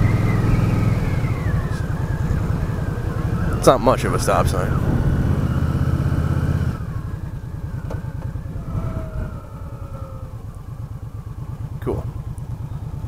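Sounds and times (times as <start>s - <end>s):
wind rush: 0.0s - 11.1s
motorcycle engine running: 0.0s - 13.0s.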